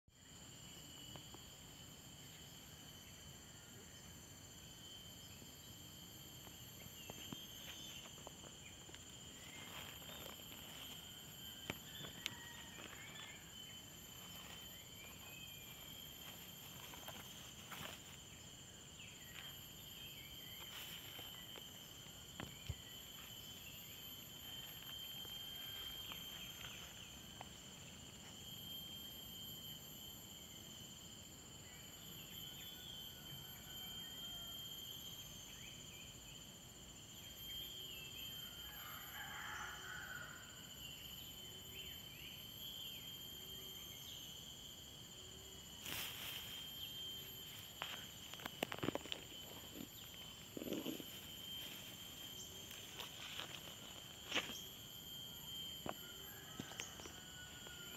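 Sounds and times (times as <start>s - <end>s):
high-pitched insect chorus: 0.1s - 57.9s
soft clicks and rustles in grass: 45.8s - 46.6s, 47.5s - 51.9s.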